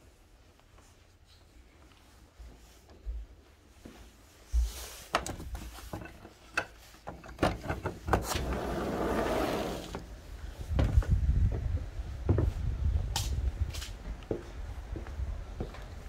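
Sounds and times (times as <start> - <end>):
sliding glass door opening: 7.3 - 10.2
door rolling along track: 8.1 - 10.1.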